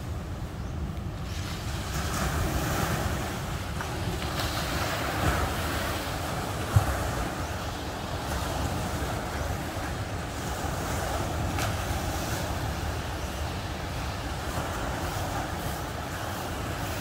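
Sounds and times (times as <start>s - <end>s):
ocean surf breaking: 0.0s - 17.0s
wind buffeting microphone: 0.0s - 17.0s.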